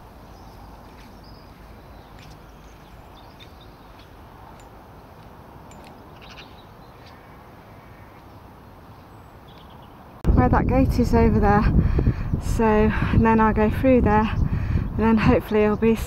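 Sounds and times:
bird chirps: 0:00.2 - 0:04.8, 0:05.6 - 0:10.0.

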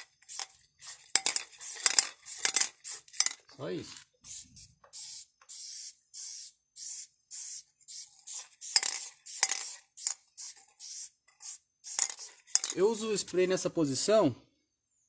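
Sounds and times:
spray paint can hissing: 0:00.0 - 0:03.4, 0:04.2 - 0:12.8.

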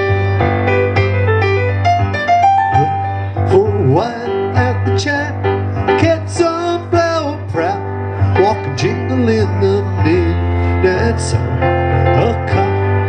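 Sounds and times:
electric keyboard piano chords: 0:00.0 - 0:13.0
man singing: 0:02.8 - 0:13.0.

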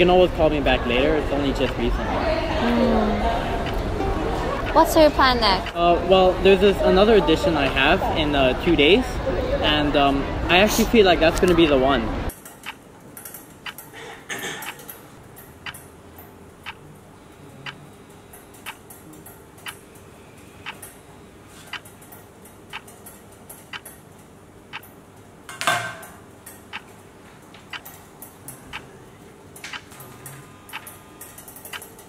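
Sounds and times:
clock ticking: 0:03.6 - 0:03.8, 0:04.6 - 0:05.8, 0:23.7 - 0:23.9, 0:24.7 - 0:24.9, 0:30.7 - 0:30.9.

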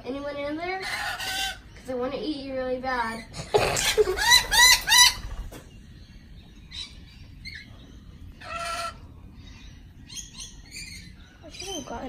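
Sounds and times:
parrot squawk: 0:00.8 - 0:01.7, 0:03.6 - 0:05.4, 0:08.4 - 0:09.0
parrot chirps: 0:03.7 - 0:05.5.

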